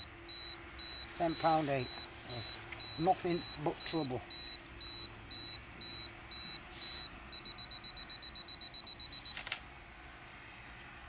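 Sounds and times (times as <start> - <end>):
camera self-timer beeps: 0.0 - 9.6
camera shutter click: 9.3 - 9.6.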